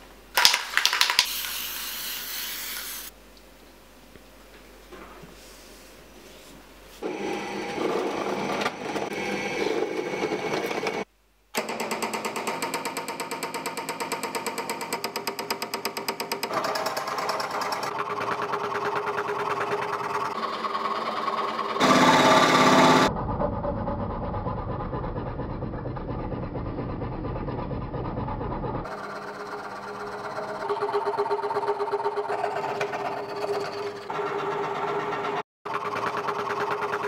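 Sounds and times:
scroll saw cutting: 0:01.2 - 0:03.1, 0:14.4 - 0:23.1, 0:28.8 - 0:37.0
drill press boring wood: 0:07.0 - 0:23.1, 0:28.9 - 0:37.0.

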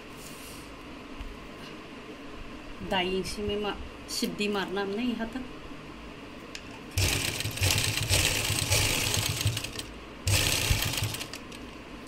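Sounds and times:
sewing machine stitching: 0:06.9 - 0:11.6.

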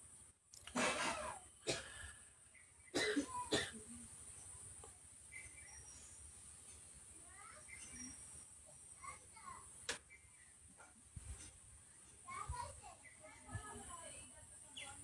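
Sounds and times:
person coughing: 0:00.8 - 0:02.0, 0:03.0 - 0:03.8.

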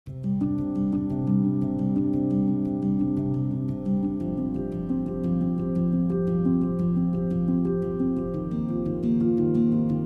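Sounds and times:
gentle instrumental music: 0:00.1 - 0:10.0
light ticking beat: 0:00.1 - 0:10.0.

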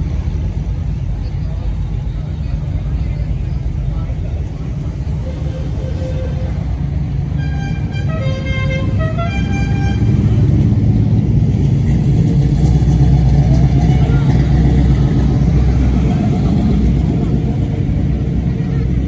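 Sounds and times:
car engines rumbling: 0:00.0 - 0:19.0
car horn playing notes: 0:05.2 - 0:06.7, 0:07.3 - 0:10.4.

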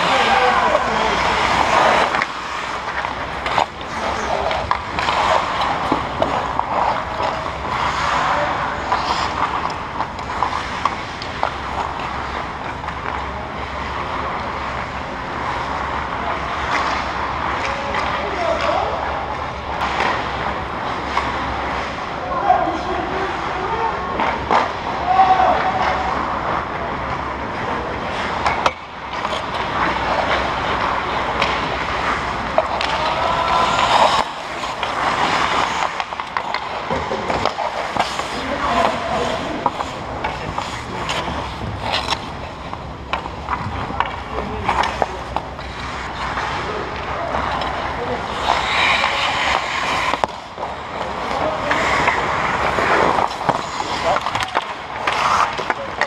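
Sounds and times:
players calling out: 0:00.0 - 0:12.4, 0:29.2 - 0:56.0
skate blades scraping ice: 0:00.0 - 0:26.8, 0:27.4 - 0:56.0
sticks and pucks clacking: 0:00.0 - 0:56.0.

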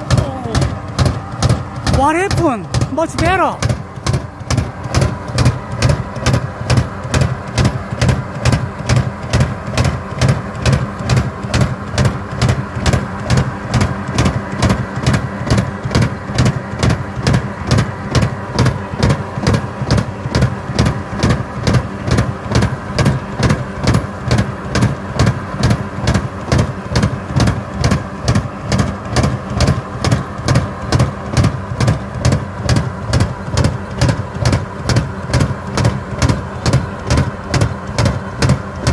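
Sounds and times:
mulcher pulsing throb: 0:00.0 - 0:25.8, 0:35.1 - 0:38.9
tractor diesel engine running: 0:00.0 - 0:38.9.

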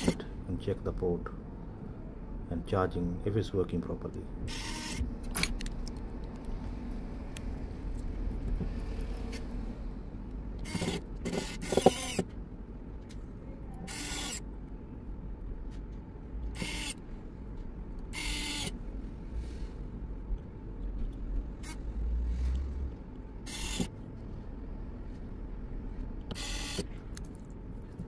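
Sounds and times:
electric screwdriver whirring: 0:04.5 - 0:05.0, 0:10.6 - 0:12.3, 0:13.9 - 0:14.4, 0:16.6 - 0:17.0, 0:18.1 - 0:18.8, 0:23.4 - 0:23.9, 0:26.3 - 0:26.9.

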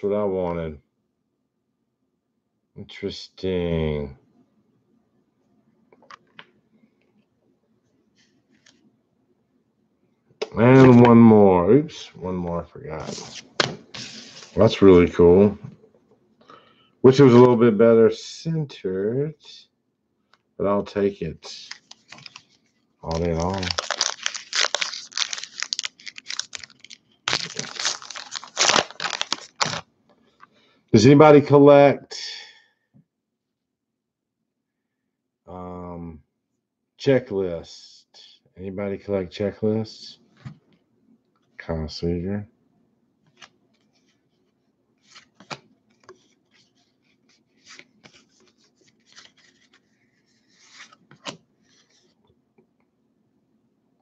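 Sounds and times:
cards sliding and rubbing: 0:13.0 - 0:14.9, 0:21.6 - 0:29.8, 0:43.3 - 0:52.2
wrapper crinkling and tearing: 0:21.5 - 0:29.8.

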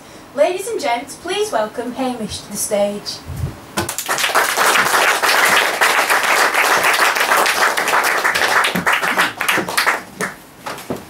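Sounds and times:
audience applauding: 0:03.8 - 0:10.4.

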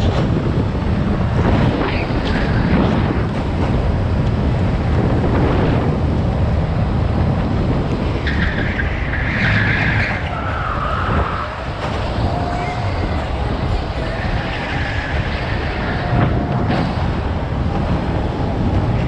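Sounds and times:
go-kart engine and road rumble: 0:00.0 - 0:19.0
tyres squealing: 0:08.2 - 0:17.1.

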